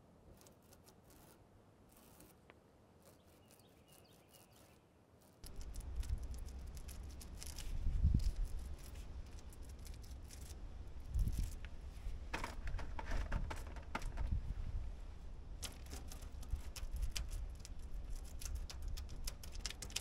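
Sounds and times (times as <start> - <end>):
paint roller crackling on metal: 3.0 - 14.3, 15.6 - 20.0.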